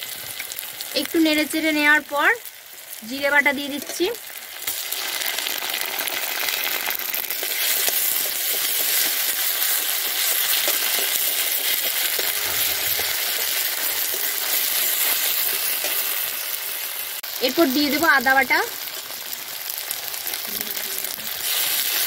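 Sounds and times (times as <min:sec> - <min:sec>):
onions sizzling in hot oil: 0:00.0 - 0:22.0.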